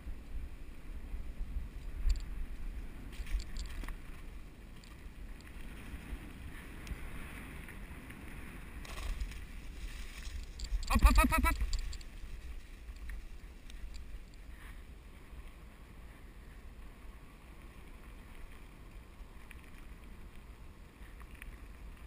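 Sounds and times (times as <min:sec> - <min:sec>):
faint ticks: 0:01.6 - 0:22.0
wheels rumbling over grass: 0:01.8 - 0:10.9.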